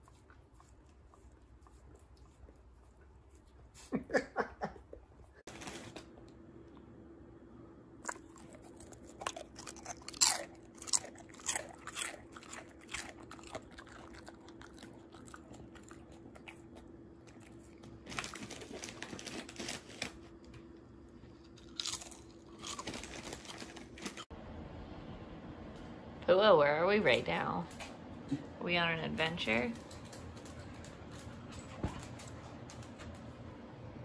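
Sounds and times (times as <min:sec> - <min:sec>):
crunchy food being chewed: 0:00.0 - 0:03.9, 0:08.0 - 0:20.2, 0:21.3 - 0:24.3.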